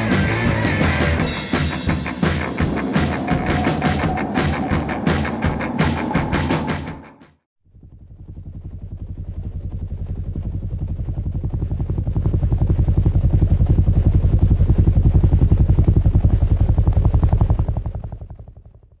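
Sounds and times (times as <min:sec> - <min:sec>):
helicopter rotor chopping: 0:00.3 - 0:07.0, 0:07.7 - 0:18.9.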